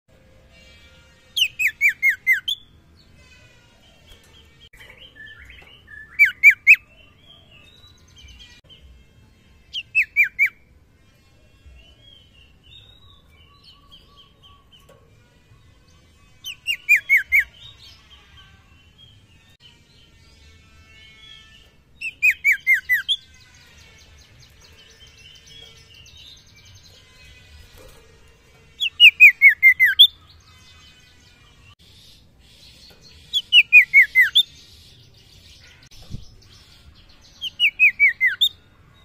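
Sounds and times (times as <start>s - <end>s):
bird whistling downward notes: 5.0s - 6.9s
bird twittering and chattering: 21.6s - 38.6s.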